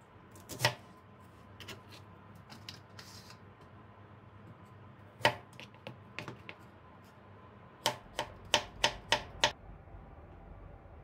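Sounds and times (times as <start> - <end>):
knife chopping on plastic board: 5.2 - 6.6, 7.8 - 9.6.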